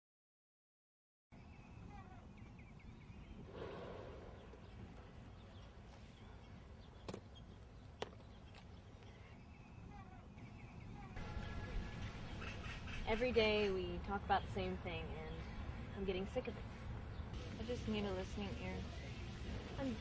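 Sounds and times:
birds chirping: 0:01.3 - 0:20.0.

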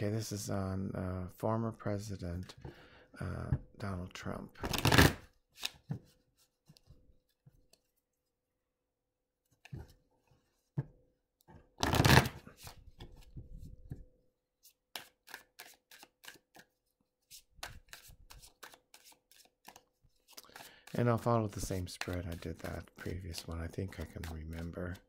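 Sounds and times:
cards riffling: 0:04.6 - 0:05.8, 0:11.8 - 0:13.2
cards rustling: 0:04.6 - 0:06.8, 0:11.8 - 0:13.3, 0:14.6 - 0:25.0.

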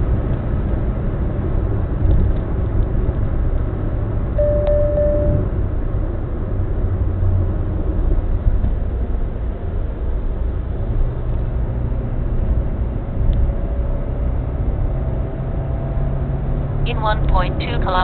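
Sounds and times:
car engine and tyre rumble: 0:00.0 - 0:18.0
low hum: 0:04.3 - 0:05.8.

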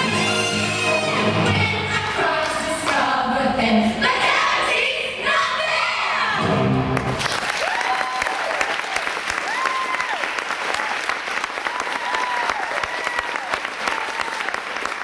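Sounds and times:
recorded song with vocals: 0:00.0 - 0:06.6.

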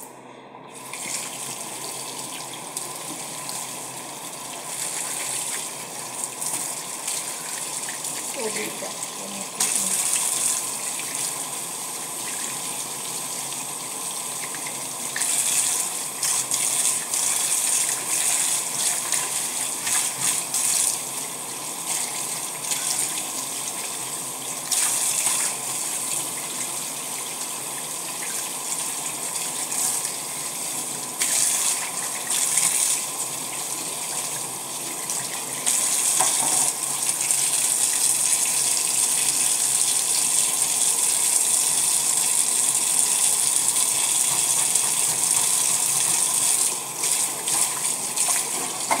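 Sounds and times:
tap water splashing into sink: 0:02.8 - 0:03.3, 0:35.0 - 0:37.5, 0:44.2 - 0:49.0.

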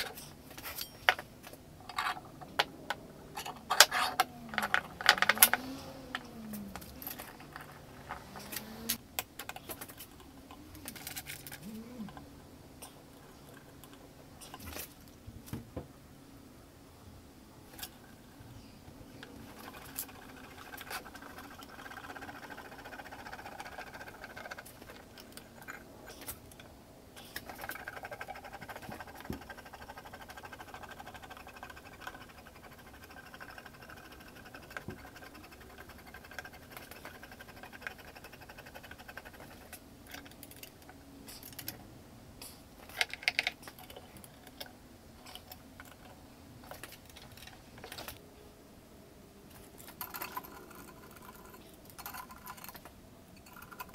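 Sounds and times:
metal parts clicking and scraping: 0:00.0 - 0:12.2, 0:33.2 - 0:41.8, 0:42.5 - 0:48.2, 0:49.5 - 0:53.9
faint steady hum: 0:00.0 - 0:53.9.

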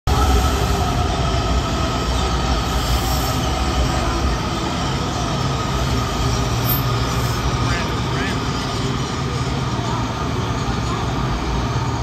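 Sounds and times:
train wheels rumbling on rail: 0:00.1 - 0:12.0
high wheel squeal: 0:05.9 - 0:09.2.

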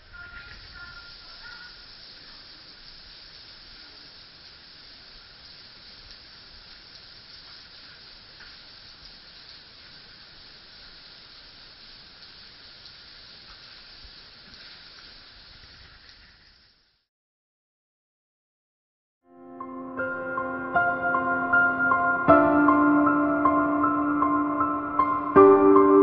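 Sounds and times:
faint steady hiss: 0:00.0 - 0:17.1
faint ticks: 0:05.4 - 0:10.0, 0:11.9 - 0:16.8.

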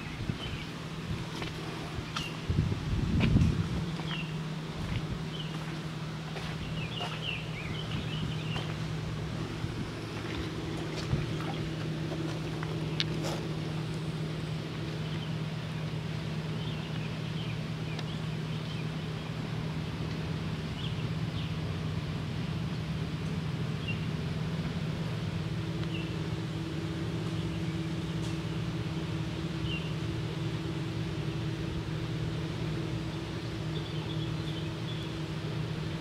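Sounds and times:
higher hum: 0:00.0 - 0:36.0
motor droning: 0:00.0 - 0:36.0
bird chirps: 0:06.5 - 0:08.8, 0:33.1 - 0:35.2.

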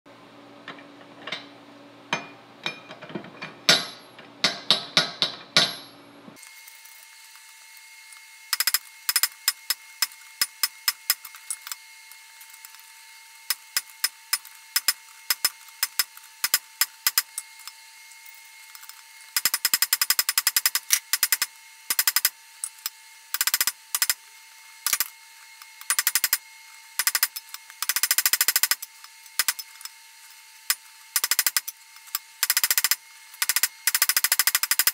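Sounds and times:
hammer striking metal: 0:02.1 - 0:06.0.

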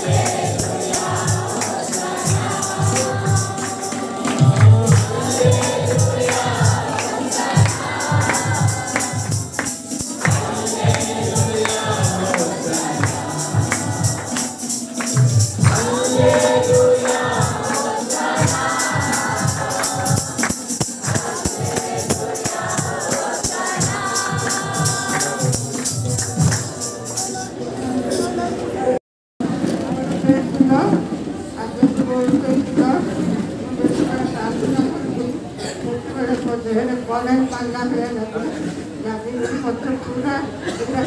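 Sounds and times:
steady low beat: 0:00.0 - 0:26.6
group of voices singing: 0:00.0 - 0:27.4
tambourine shaking: 0:00.0 - 0:27.6.

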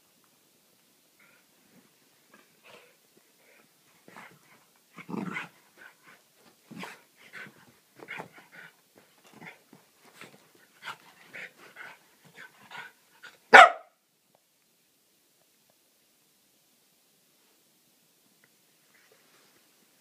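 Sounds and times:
dog growling and yapping: 0:04.9 - 0:05.6
loud dog bark: 0:13.5 - 0:14.0.

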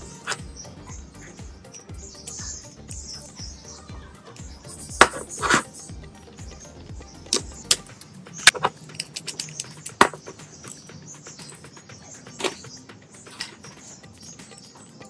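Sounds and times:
faint background music: 0:00.0 - 0:15.0
metal parts clicking and knocking: 0:07.3 - 0:11.7.

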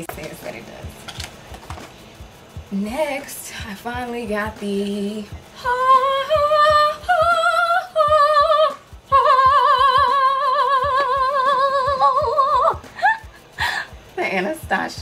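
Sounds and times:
woman singing operatically: 0:02.8 - 0:12.9.

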